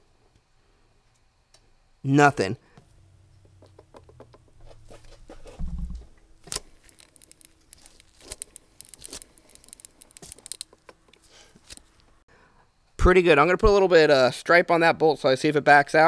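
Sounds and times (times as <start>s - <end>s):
dull thump: 5.5s - 6.1s
pulley bearing clicking and rattling: 6.8s - 10.9s.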